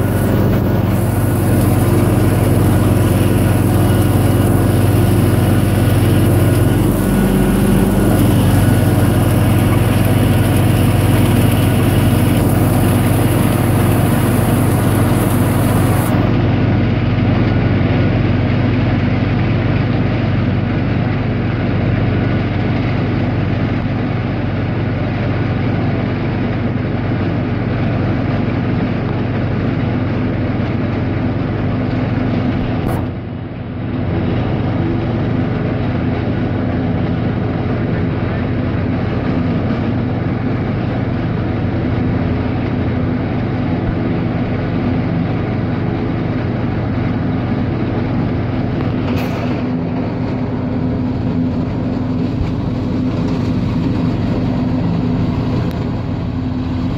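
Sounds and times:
forage harvester chopping corn: 0.0 - 17.7, 30.6 - 33.2, 41.8 - 56.9
tractor engine under load: 0.0 - 56.9.

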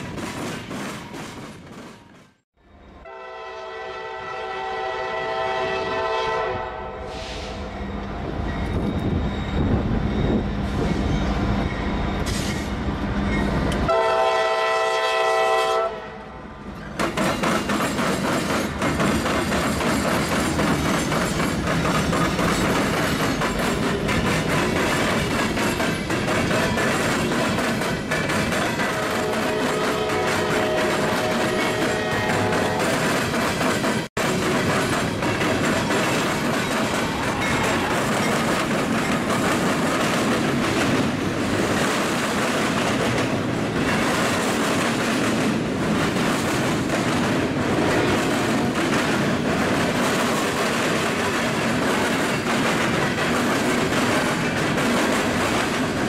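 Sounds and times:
locomotive air horn blasts: 3.0 - 7.7, 13.9 - 16.3, 29.0 - 32.8
steel wheels clattering: 17.0 - 56.0.

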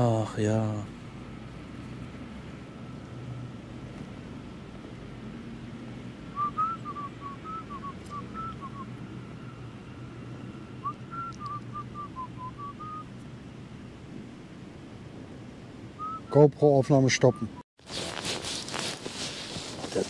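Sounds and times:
person whistling a tune: 6.4 - 9.6, 10.8 - 13.0, 16.0 - 16.3.

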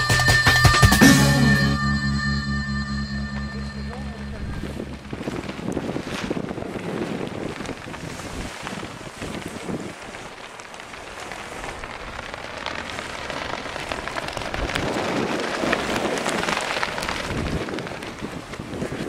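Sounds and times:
crackling and rustling: 4.0 - 19.0
wind rushing over microphone: 4.1 - 19.0.

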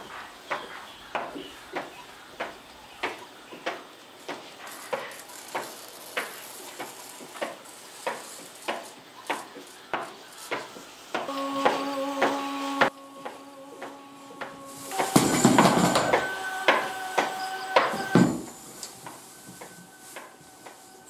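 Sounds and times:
faint hiss: 0.0 - 21.0
sharp ringing knocks: 14.9 - 19.8.

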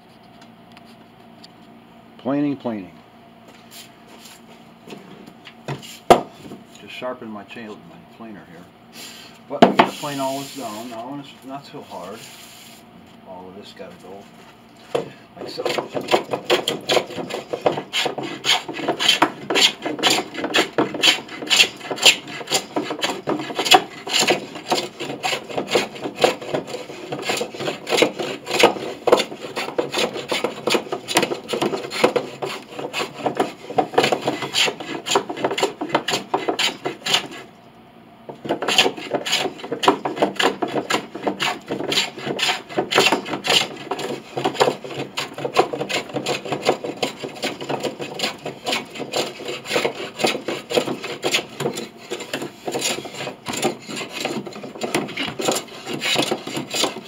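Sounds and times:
hand plane scraping wood: 9.8 - 11.2, 15.4 - 37.5, 38.3 - 57.0.

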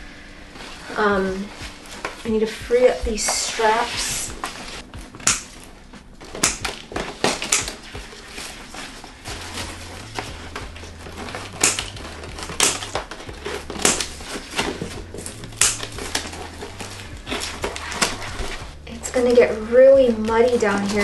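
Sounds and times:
scissors snipping roots and moss: 5.2 - 5.6, 6.4 - 7.8, 11.1 - 18.2.

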